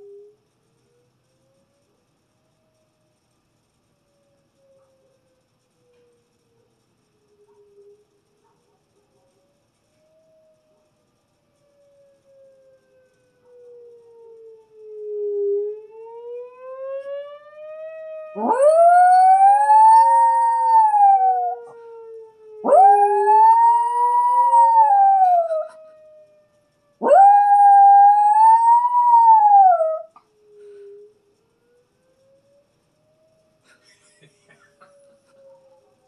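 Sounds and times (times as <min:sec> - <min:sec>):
warning siren rising and falling: 0:13.5 - 0:26.3, 0:26.9 - 0:33.5
puppy howling: 0:18.4 - 0:21.7, 0:22.6 - 0:25.8, 0:27.0 - 0:30.1.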